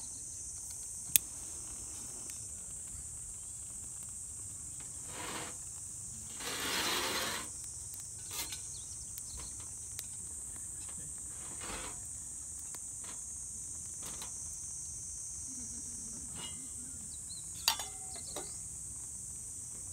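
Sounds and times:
insects buzzing: 0.0s - 19.9s
metal cookware clinking: 17.6s - 18.6s.

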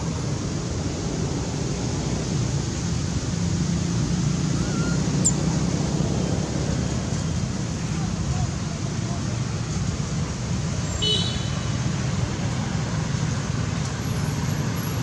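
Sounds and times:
high falling chirp: 4.5s - 5.5s.

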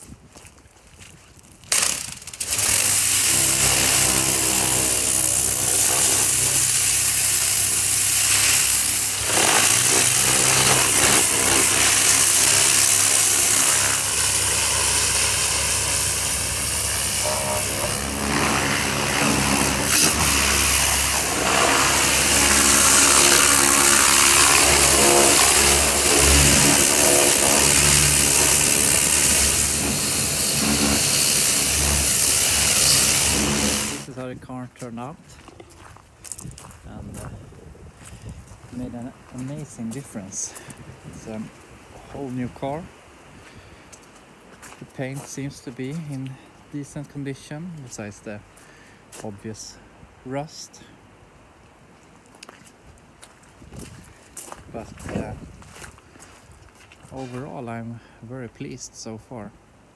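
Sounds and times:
high-pressure spray hissing: 1.7s - 34.1s
pressure washer motor hum: 1.7s - 34.1s.

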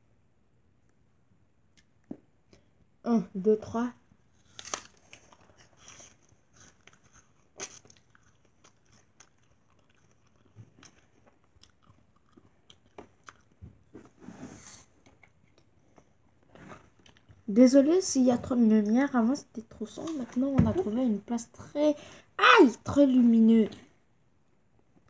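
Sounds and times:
apple crunching: 4.4s - 13.6s.

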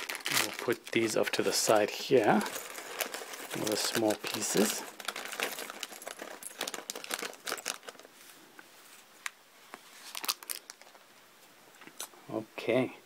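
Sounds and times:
plastic bag crinkling: 0.0s - 8.2s, 10.0s - 11.0s.

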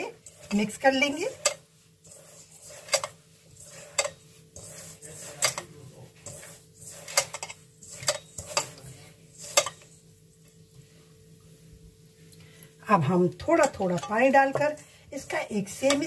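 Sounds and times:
rustle of crumbly flour mix: 0.0s - 12.3s.

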